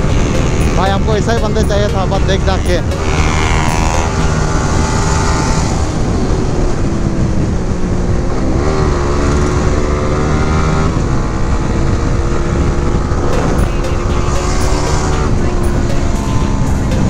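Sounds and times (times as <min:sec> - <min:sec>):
wind and road noise: 0:00.0 - 0:17.0
motorcycle engine at high revs: 0:02.8 - 0:15.4.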